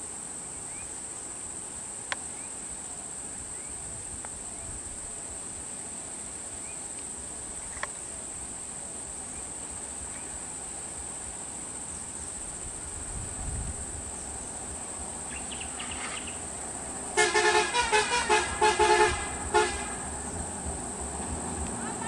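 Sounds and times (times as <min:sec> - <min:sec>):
insects droning: 0:00.0 - 0:22.0
bus horn toots: 0:17.2 - 0:20.1.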